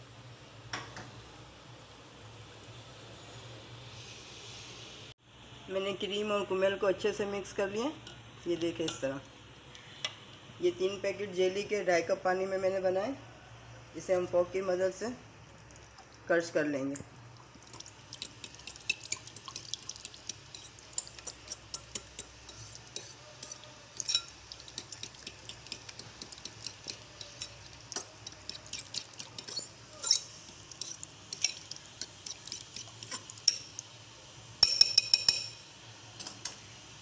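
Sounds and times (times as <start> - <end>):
fork clinking against glass bowl: 18.2 - 33.7, 34.6 - 35.6
glass ringing: 24.0 - 24.4, 34.6 - 35.6.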